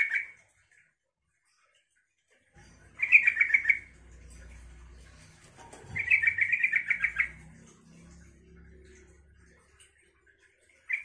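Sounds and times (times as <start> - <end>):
bulbul singing chattering song: 2.6 - 11.0.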